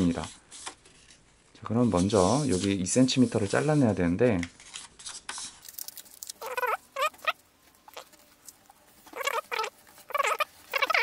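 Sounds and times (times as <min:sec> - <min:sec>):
fingers squeaking on paper fold: 0:04.7 - 0:11.0.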